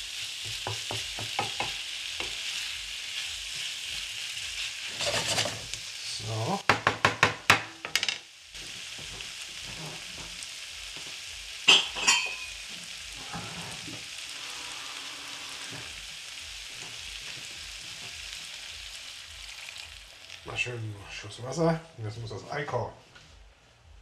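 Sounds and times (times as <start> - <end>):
tomatoes sizzling in a pan: 0.0 - 22.8
water poured into a pan: 19.2 - 20.6.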